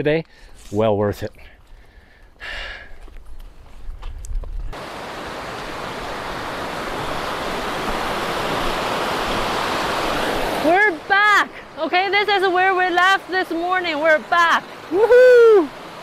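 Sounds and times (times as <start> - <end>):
creek water flowing: 4.7 - 16.0.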